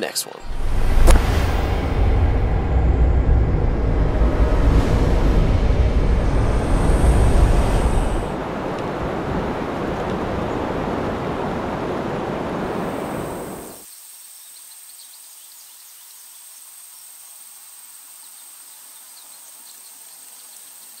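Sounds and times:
loud outdoor rushing noise: 0:00.4 - 0:13.8.

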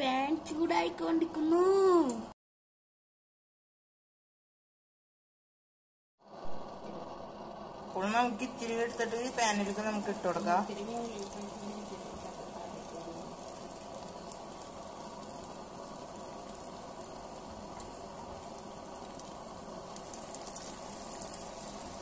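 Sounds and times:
batter deep-frying sizzle: 0:06.2 - 0:22.0.

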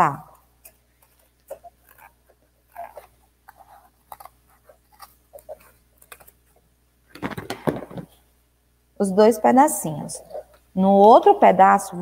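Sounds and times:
scissors cutting cardboard: 0:00.6 - 0:06.5
cardboard rustling and knocking: 0:07.1 - 0:08.2.

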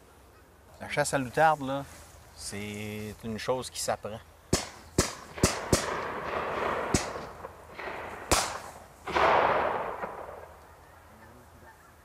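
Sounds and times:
shotgun shots echoing: 0:04.5 - 0:10.8.

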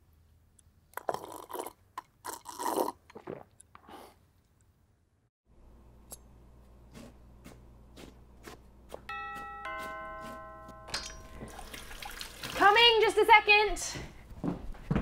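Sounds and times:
person chewing crunchy snack: 0:01.0 - 0:03.6
low steady hum: 0:05.5 - 0:12.8.

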